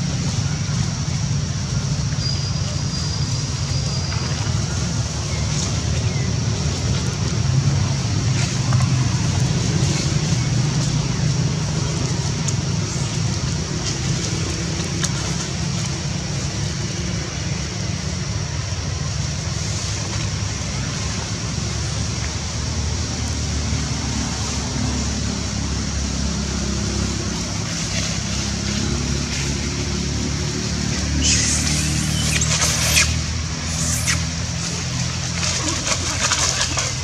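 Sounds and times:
high hiss: 31.0s - 34.8s.

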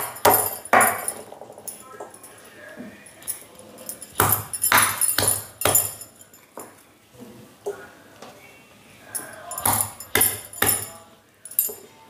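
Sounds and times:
stone pestle pounding in mortar: 0.0s - 1.2s, 4.1s - 6.0s, 9.6s - 11.0s.

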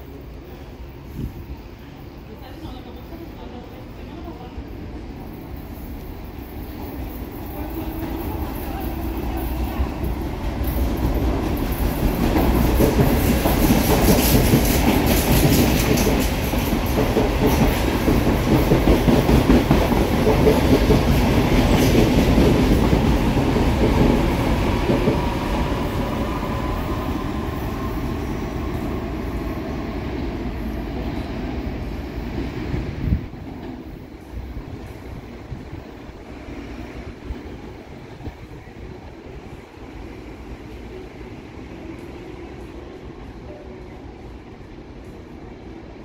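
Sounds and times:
train wheels clattering over rail joints: 10.6s - 23.2s.

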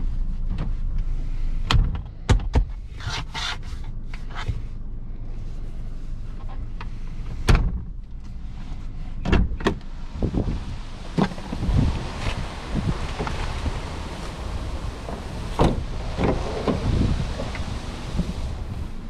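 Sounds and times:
low steady hum: 0.0s - 19.0s
fabric rustling: 10.0s - 19.0s
loud seat click: 11.1s - 19.0s
seat hinge clacks: 11.1s - 19.0s
car door latch clicks: 15.1s - 17.7s.

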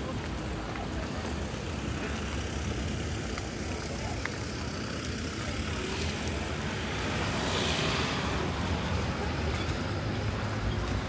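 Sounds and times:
traffic rumble: 0.0s - 11.0s
vehicle passing: 2.5s - 11.0s.

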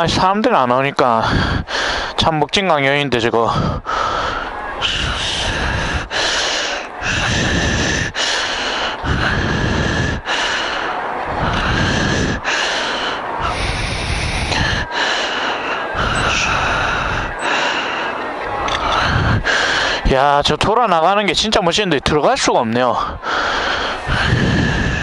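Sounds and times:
person breathing heavily: 1.1s - 2.3s, 3.4s - 20.2s, 22.9s - 25.0s.

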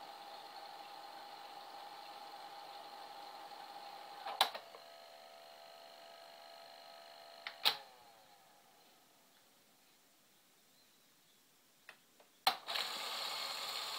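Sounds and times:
video recorder motor whine: 0.0s - 8.9s, 12.6s - 13.9s.

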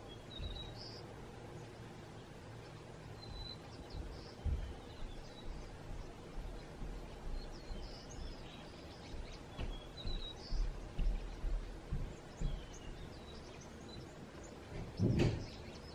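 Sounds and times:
songbirds chirping: 0.0s - 15.9s
low thumps: 3.3s - 4.9s, 9.5s - 13.1s.

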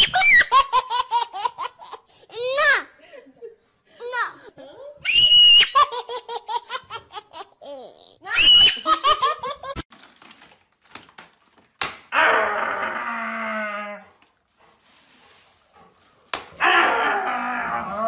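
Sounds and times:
high-pitched laughter and giggles: 2.8s - 9.8s.

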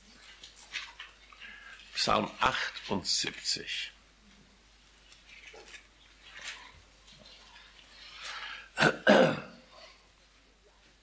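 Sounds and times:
pages turning: 0.1s - 3.0s, 5.0s - 8.4s
person coughing: 8.8s - 9.6s.

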